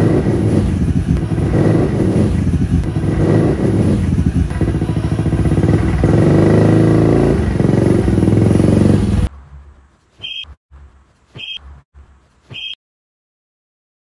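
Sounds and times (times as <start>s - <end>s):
motorcycle engine revving: 0.0s - 9.3s
short high beeps: 10.2s - 10.6s, 11.4s - 11.6s, 12.5s - 12.8s.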